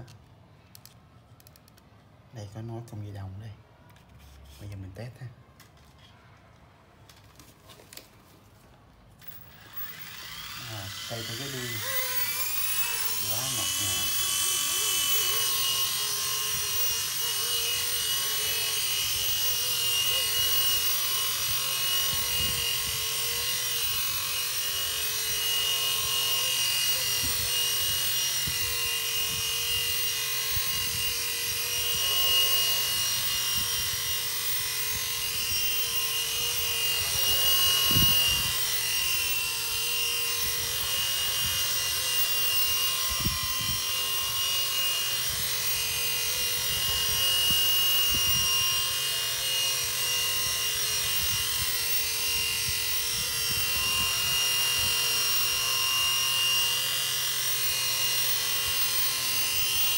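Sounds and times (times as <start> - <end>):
toy helicopter hovering: 9.2 - 59.9.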